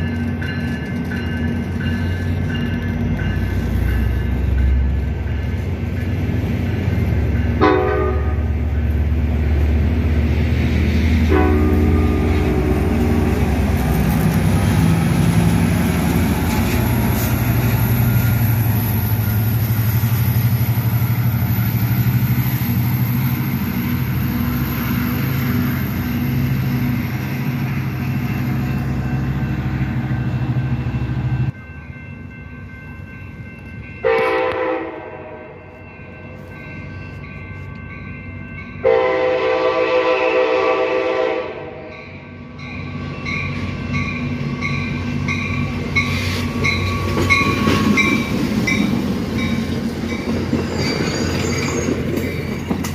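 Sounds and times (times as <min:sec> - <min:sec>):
diesel locomotive engine under load: 0:00.0 - 0:52.9
train running: 0:00.0 - 0:52.9
train horn blasts: 0:07.6 - 0:08.6, 0:11.3 - 0:13.5, 0:34.0 - 0:35.7, 0:38.8 - 0:42.1.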